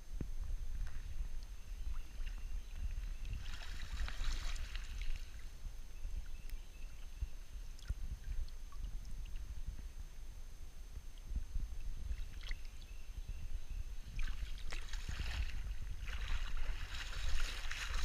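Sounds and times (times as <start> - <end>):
low water rumble: 0.0 - 18.0
stream water splashing: 1.9 - 5.6, 14.2 - 18.0.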